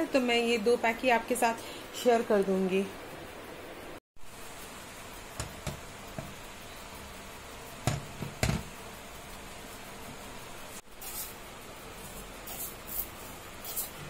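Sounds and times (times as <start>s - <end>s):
gas burner hiss: 4.2s - 14.0s.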